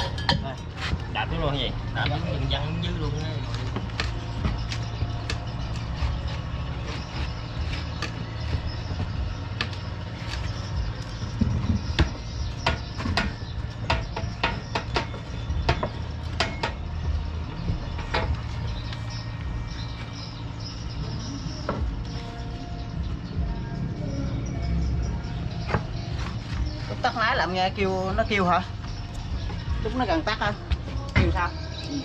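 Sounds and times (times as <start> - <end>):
steady low hum: 0.0 - 32.0
metallic clanks and taps: 11.4 - 16.9.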